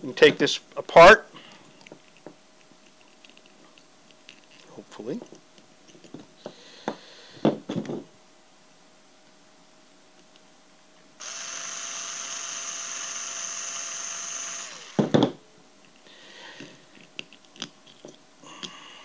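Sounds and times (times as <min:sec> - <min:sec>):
electric screwdriver running: 0:11.2 - 0:15.0
sharp knocks: 0:14.9 - 0:15.4.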